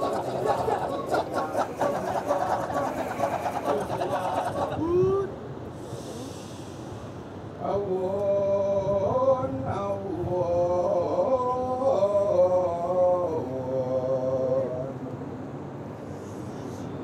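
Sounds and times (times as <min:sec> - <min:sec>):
male voices chanting: 0:00.0 - 0:05.3.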